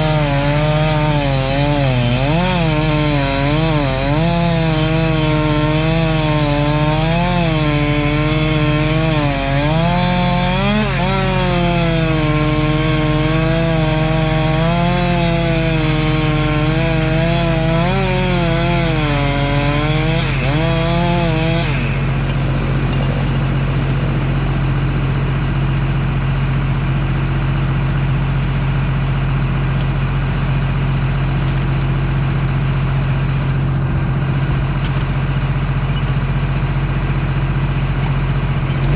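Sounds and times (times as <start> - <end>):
chainsaw cutting wood: 0.0 - 25.7, 31.3 - 38.9
dozer engine idling: 21.8 - 38.9.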